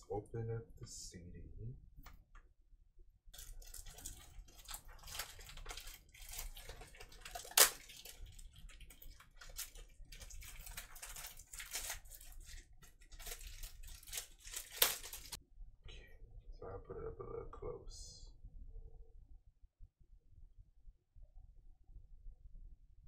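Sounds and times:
plastic wrap crinkling: 0:03.4 - 0:15.4.

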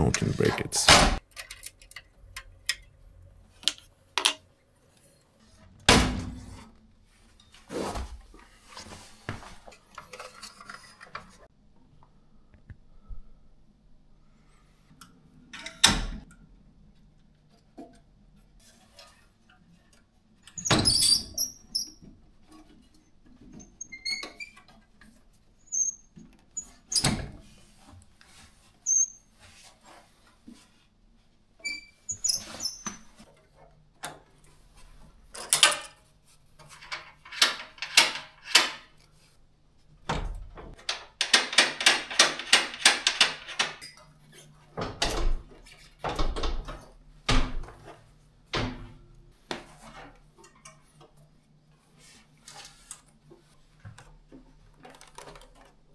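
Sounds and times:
metal brackets knocking and clunking: 0:36.7 - 0:38.9, 0:40.1 - 0:44.0.

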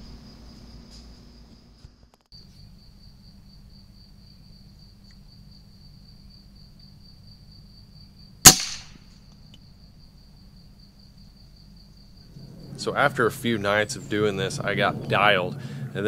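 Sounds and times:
air rifle shot: 0:08.4 - 0:09.1.

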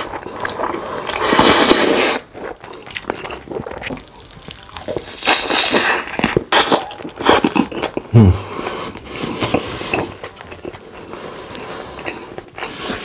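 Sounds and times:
chewing with wet clicks: 0:02.6 - 0:08.1.

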